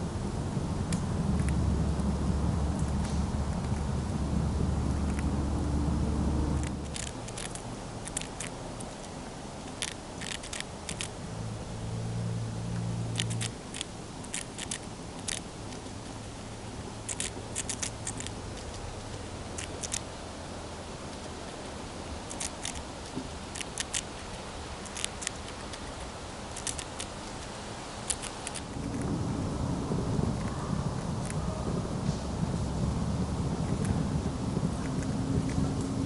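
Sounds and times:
wind buffeting microphone: 0.0 - 9.0, 28.6 - 36.0
faint low hum: 0.0 - 36.0
chipmunk crunching snack: 0.9 - 1.6, 2.7 - 4.1, 4.9 - 11.2, 12.7 - 20.1, 22.2 - 29.1, 30.3 - 31.4, 33.6 - 34.0, 34.8 - 35.8.

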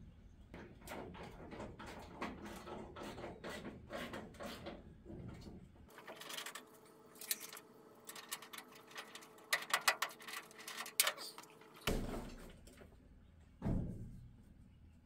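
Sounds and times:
metallic clicks and rattles: 7.2 - 11.5.

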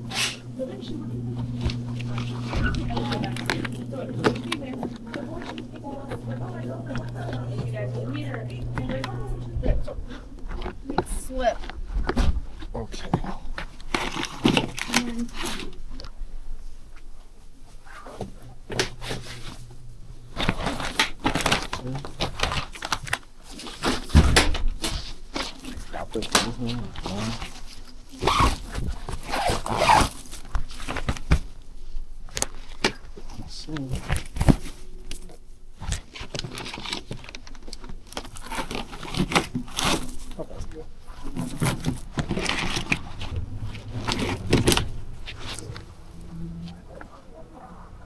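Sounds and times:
low hum: 0.0 - 10.9, 41.4 - 48.0
plastic tray and bag rustling: 32.4 - 47.2.

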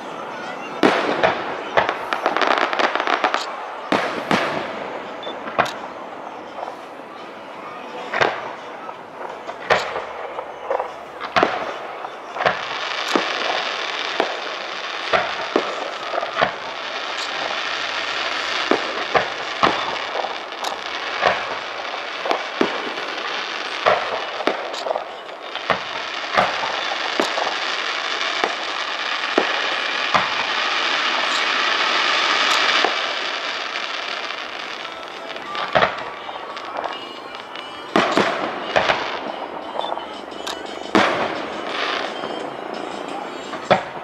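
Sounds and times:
continuous fireworks hiss: 0.0 - 44.0
firework shells bursting: 0.8 - 6.8, 9.2 - 44.0.

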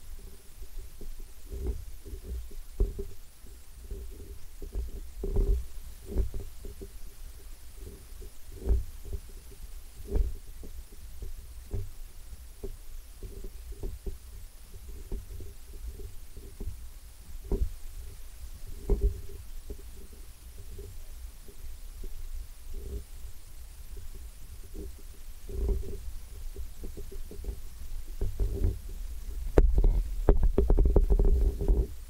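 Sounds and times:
camera handling rumble: 29.5 - 31.9.

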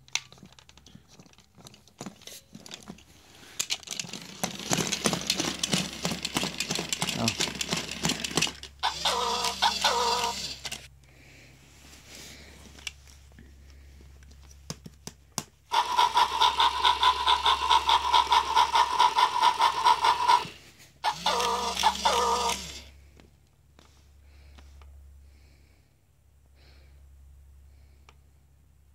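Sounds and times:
toy electronic patterned sound: 8.8 - 10.8, 15.7 - 22.9.

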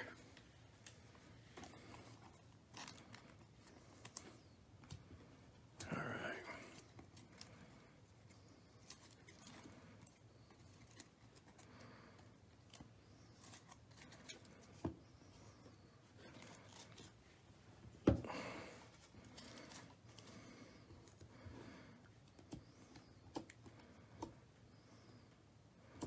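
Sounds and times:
cards rustling and clicking: 0.2 - 5.1, 18.5 - 25.2.

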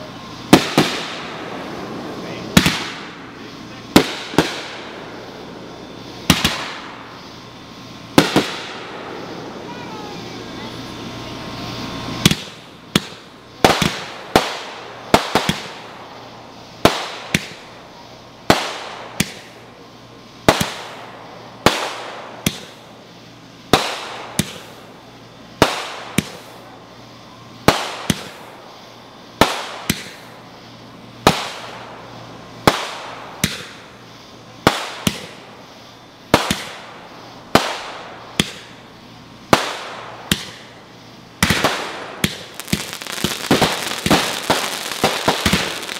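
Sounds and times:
aerial fireworks bangs: 0.0 - 5.3, 5.9 - 7.3, 8.1 - 10.3, 11.6 - 17.7, 20.4 - 22.8, 23.7 - 24.8, 25.6 - 26.6, 27.6 - 28.8, 29.4 - 33.9, 34.6 - 35.4, 36.3 - 38.8, 39.5 - 45.9.

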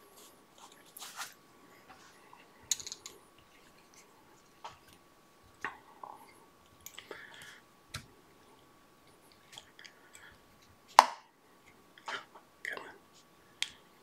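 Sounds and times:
hands rustling thread and materials: 0.0 - 11.0.

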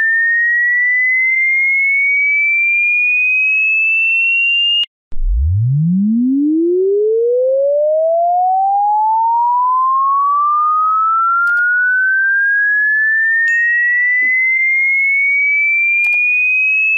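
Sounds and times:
short click: 11.5 - 11.7, 16.0 - 16.2.

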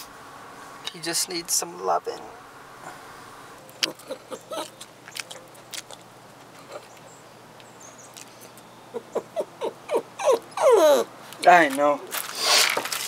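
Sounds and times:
puppy sniffing: 3.7 - 7.0
puppy whimpering: 3.8 - 5.5, 8.9 - 11.1.

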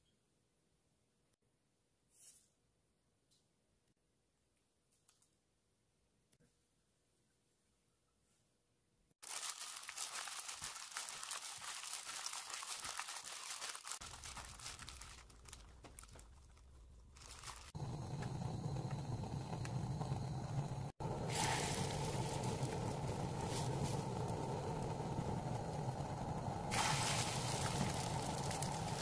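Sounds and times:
plastic glove crinkling and squelching: 9.2 - 17.8, 26.7 - 29.0
batter sizzling in frying pan: 21.1 - 29.0.

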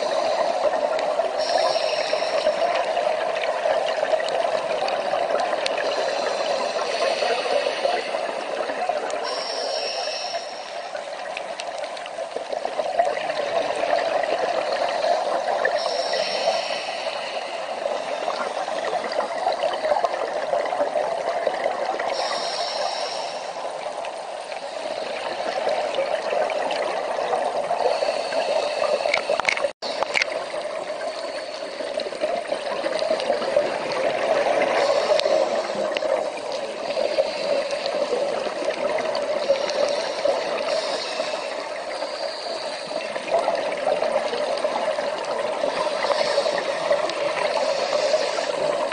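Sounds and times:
regulator breathing: 0.0 - 3.0, 5.7 - 11.2, 14.5 - 20.0, 22.1 - 26.0
bubbles hissing: 0.0 - 48.9
underwater water noise: 0.0 - 48.9.

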